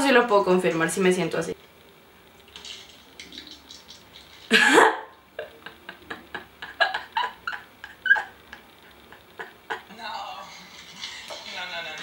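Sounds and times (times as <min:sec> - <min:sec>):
woman laughing: 0:04.5 - 0:09.9.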